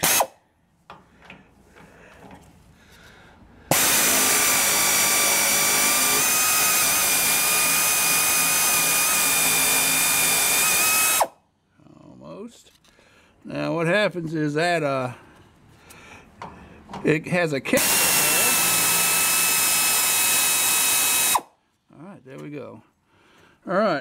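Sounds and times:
air ratchet whining: 0:00.0 - 0:00.4, 0:03.7 - 0:11.4, 0:17.8 - 0:21.5.

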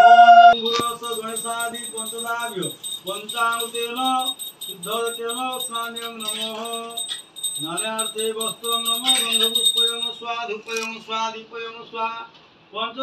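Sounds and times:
hand bell ringing: 0:00.6 - 0:11.0.

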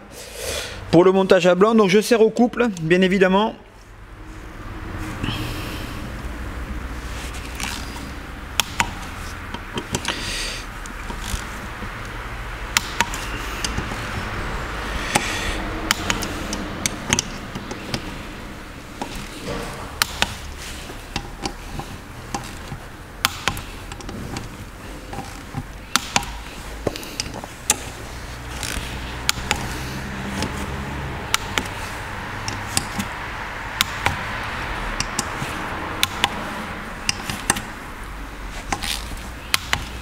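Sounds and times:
wrench clicking on bolts: 0:07.4 - 0:18.2, 0:18.9 - 0:37.8, 0:38.6 - 0:40.0.

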